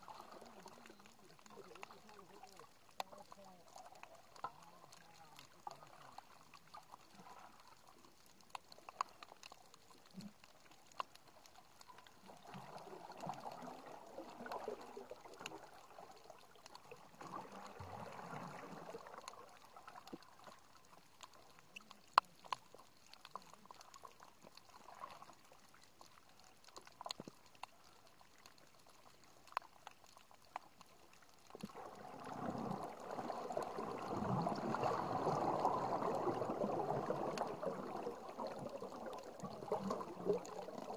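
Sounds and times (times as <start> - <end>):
underwater water gurgling: 0.0 - 40.9
sharp clicks and crackles: 0.1 - 40.9.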